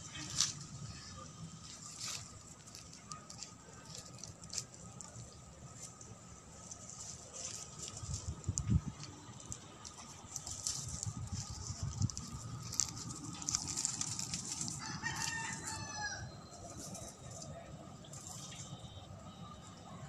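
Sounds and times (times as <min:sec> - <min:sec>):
leaves rustling: 0:00.0 - 0:18.8
handling noise: 0:01.7 - 0:16.0
rooster crowing: 0:14.7 - 0:16.5.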